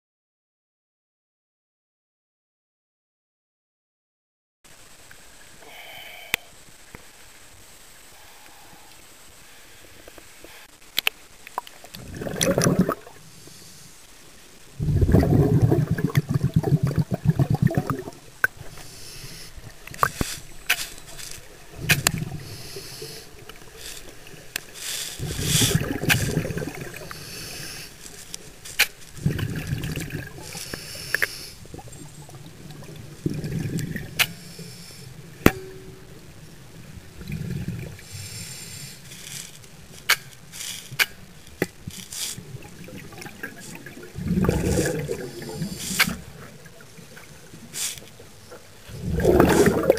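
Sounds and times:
regulator exhaust bubbles: 0:42.6 - 0:46.2.

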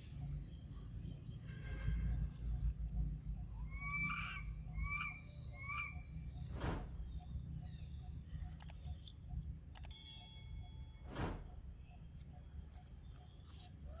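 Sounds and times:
brief whoosh: 0:06.6 - 0:06.9, 0:11.0 - 0:11.6.

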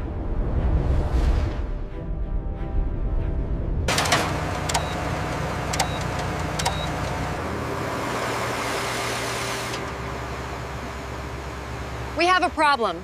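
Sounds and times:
music: 0:00.0 - 0:03.9
sharp metallic clicks: 0:03.9 - 0:07.2
steady machinery noise: 0:03.9 - 0:13.0.

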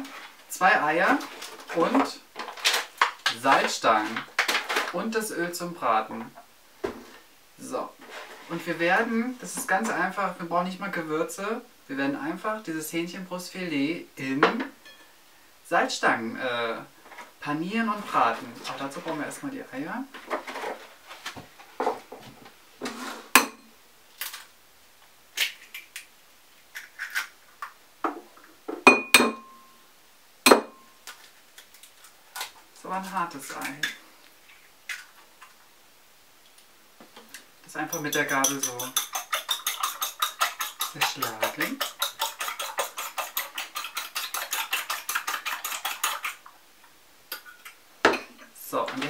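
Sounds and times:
fork beating eggs in bowl: 0:37.9 - 0:46.5.

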